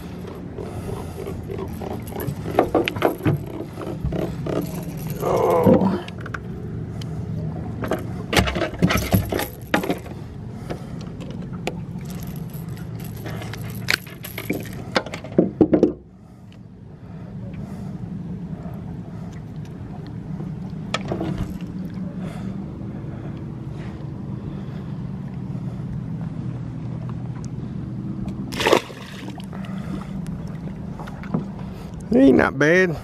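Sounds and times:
low hum: 0.0 - 32.2
fish knocking and rattling on deck: 0.2 - 5.0, 7.8 - 16.0.

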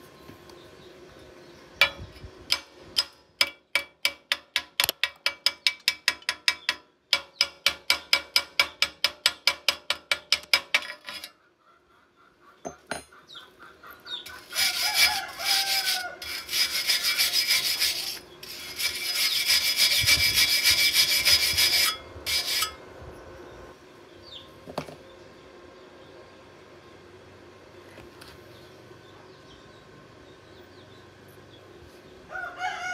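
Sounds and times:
wire brush scraping metal: 7.9 - 11.4, 14.2 - 22.8.

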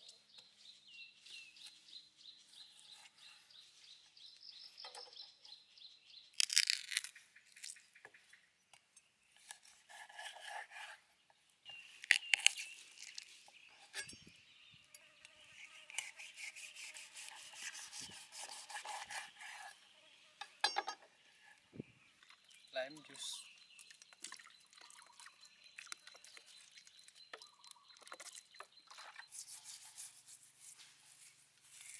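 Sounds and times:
knife crunching through bone: 6.4 - 7.8, 12.0 - 13.3.

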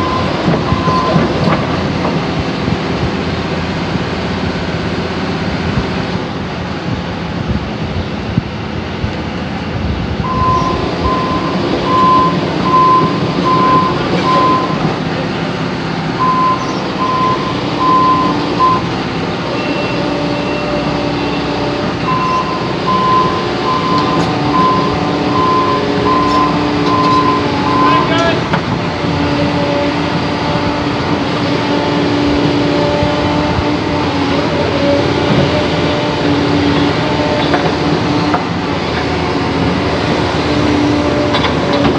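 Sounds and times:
travel alarm beeping: 0.0 - 1.4, 10.2 - 14.9, 16.1 - 28.4
excavator diesel engine running: 0.0 - 41.9.

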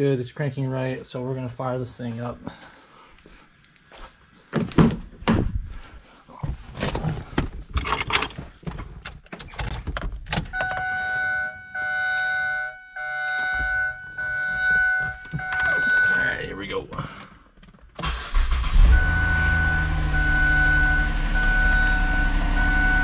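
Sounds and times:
car warning chime: 10.5 - 16.7, 18.6 - 23.0.

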